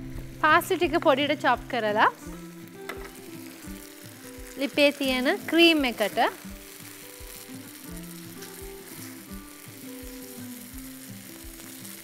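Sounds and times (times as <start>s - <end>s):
cream sizzling and bubbling in pan: 0.0s - 12.0s
soft background music: 0.0s - 12.0s
spatula stirring: 2.9s - 12.0s.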